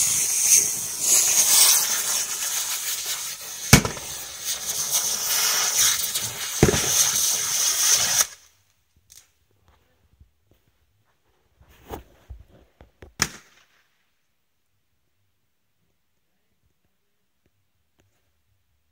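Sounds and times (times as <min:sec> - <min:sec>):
ground firework hissing: 0:00.0 - 0:08.5.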